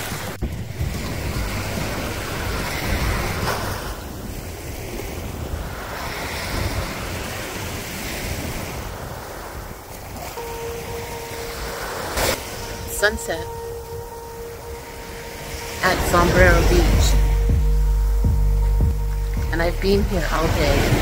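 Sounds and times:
wind buffeting microphone: 0.0 - 21.0
small waves washing on sand: 0.1 - 12.8.

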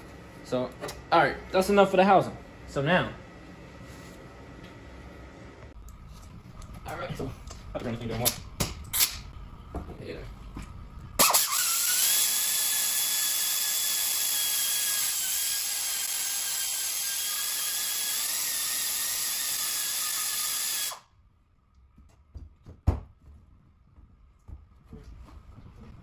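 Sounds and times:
air tool hissing and whining: 11.2 - 21.0.

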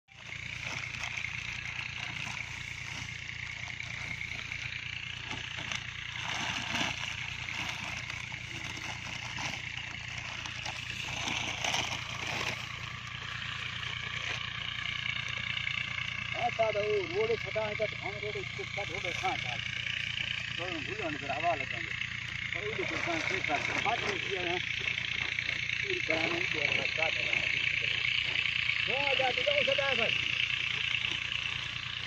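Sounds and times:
outdoor hiss and hum: 0.1 - 32.0
plastic sack rustling: 0.2 - 13.6.

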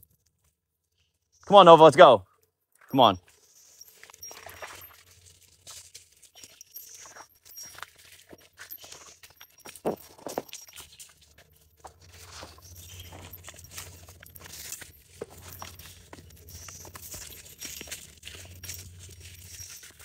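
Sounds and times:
leaves and brush rustling: 3.3 - 20.0
twigs crackling underfoot: 3.9 - 20.0.

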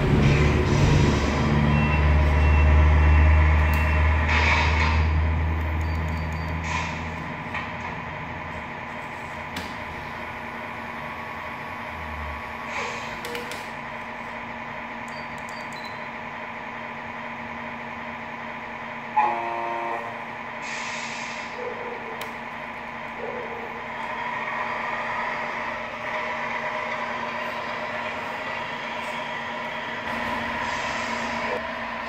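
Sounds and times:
diesel engine idling: 0.0 - 32.0
truck horn blast: 19.2 - 20.3
air brake hiss: 20.6 - 21.7, 30.5 - 31.6.

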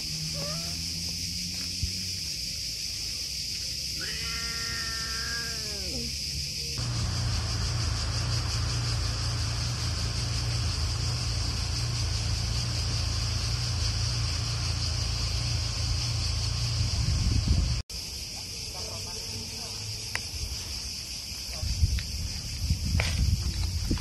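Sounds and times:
insects chirping: 0.0 - 24.0
cat meowing: 0.3 - 0.8, 4.0 - 6.1
low rumble: 6.8 - 17.8.

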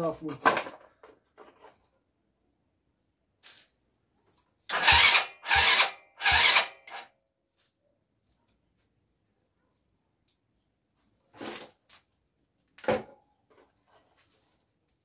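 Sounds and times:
electric starter cranking: 4.7 - 7.0.

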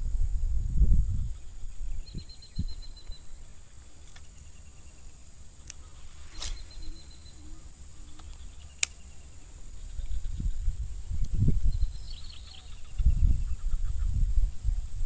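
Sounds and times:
crickets chirping: 0.0 - 15.0
short rapid insect trill: 0.1 - 15.0
sharp clicks: 8.1 - 9.2.

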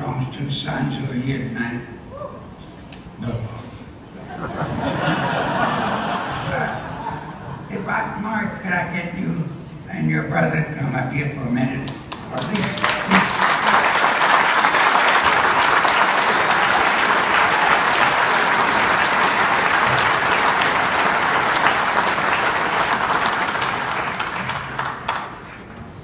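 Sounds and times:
audience applauding: 11.9 - 26.0.

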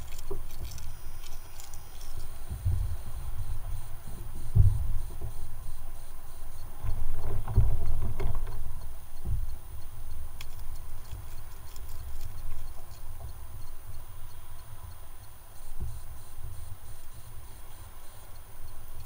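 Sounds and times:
fishing gear knocking and rattling: 0.0 - 3.4, 10.4 - 13.3
wind rumbling on microphone: 0.0 - 19.0.

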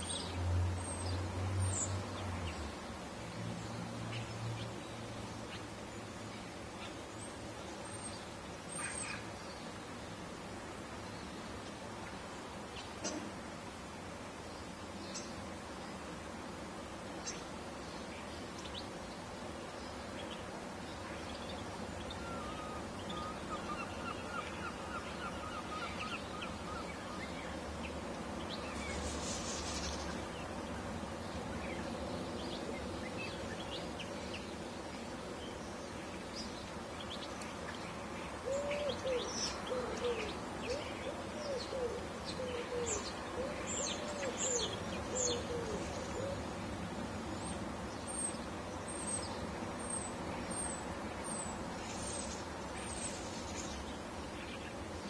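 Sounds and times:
steady background hiss: 0.0 - 55.0
lower arched bird calls: 7.9 - 9.4, 20.1 - 27.6, 38.4 - 46.5
birds chirping: 17.2 - 46.6.

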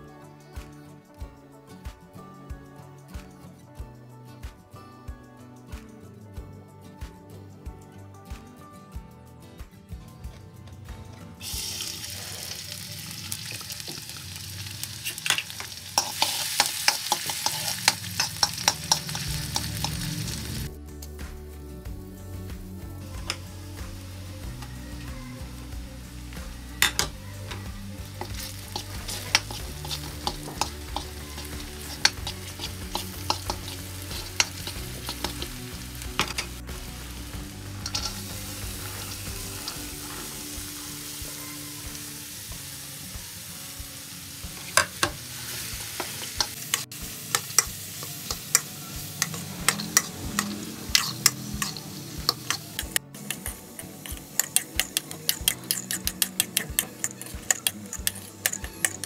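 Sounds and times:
onions sizzling in hot oil: 11.4 - 20.7, 23.2 - 59.0
metal spoon scraping pan: 14.8 - 20.4, 26.8 - 40.4, 44.6 - 59.0.

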